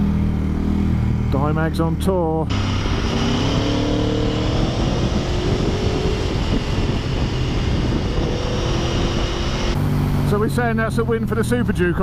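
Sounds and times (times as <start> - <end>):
motorcycle engine running: 0.0 - 12.0
wind rush: 2.5 - 9.8.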